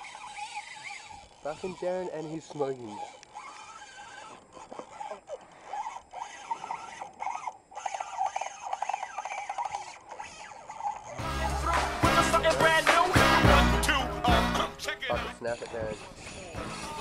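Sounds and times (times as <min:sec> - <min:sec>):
fishing reel ratchet clicks: 0:00.0 - 0:04.9
fishing reel whirring: 0:00.0 - 0:14.5, 0:15.4 - 0:17.0
rap music with heavy beat: 0:11.2 - 0:15.4, 0:16.0 - 0:17.0.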